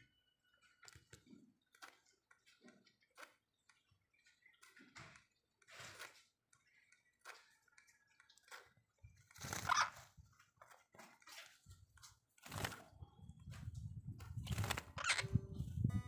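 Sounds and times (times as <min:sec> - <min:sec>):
bird wings fluttering: 0:04.5 - 0:06.3, 0:07.2 - 0:15.8.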